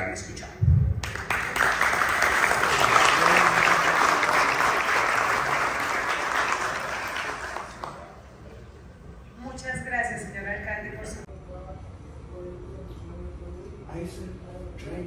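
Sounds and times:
audience applause: 1.0s - 8.2s.

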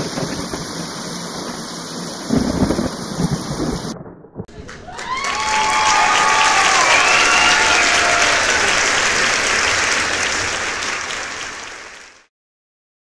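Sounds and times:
voices cheering: 4.5s - 12.0s
crowd applauding: 4.5s - 12.3s.

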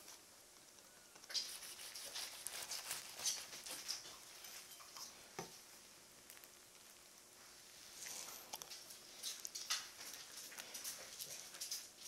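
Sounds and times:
toasted sandwich crackling: 0.0s - 4.7s.

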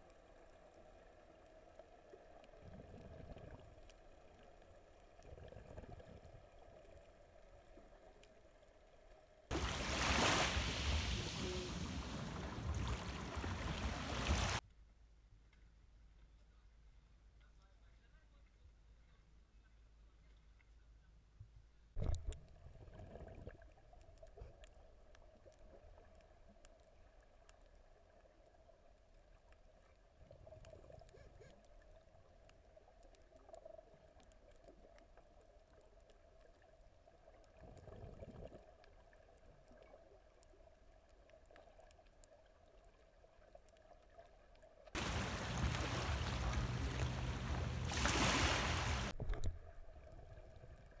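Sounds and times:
underwater bubbling: 0.0s - 14.6s, 22.0s - 51.0s
splash into water: 9.5s - 14.6s, 45.0s - 49.2s
faint steady hum: 45.0s - 51.0s.

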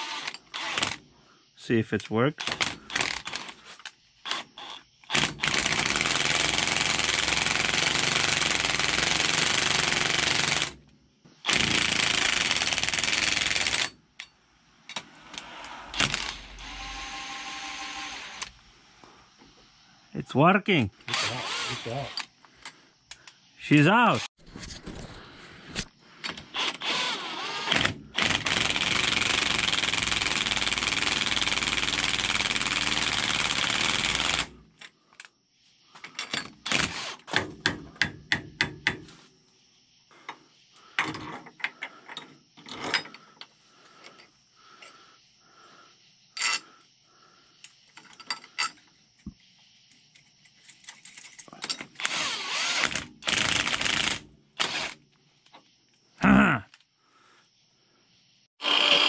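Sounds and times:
power tool running: 52.0s - 55.0s, 58.6s - 59.0s.

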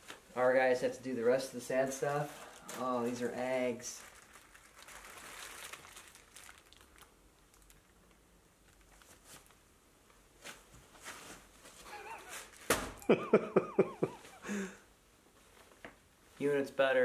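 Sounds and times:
plastic wrap crinkling: 1.8s - 13.0s.

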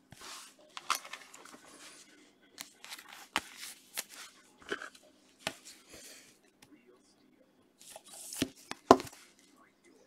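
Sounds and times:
cards rustling in plastic sleeves: 0.1s - 6.2s.

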